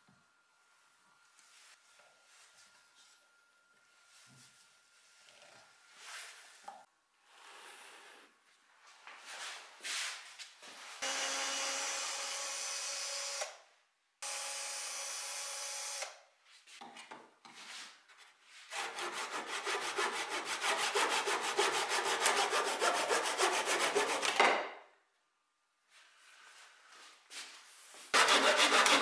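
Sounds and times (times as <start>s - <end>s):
hand saw cutting wood: 18.7s - 24.5s, 28.1s - 29.0s.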